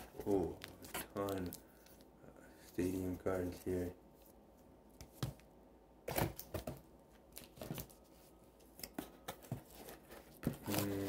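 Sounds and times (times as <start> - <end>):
cards and cardboard box handled: 0.0 - 2.0, 6.1 - 11.0.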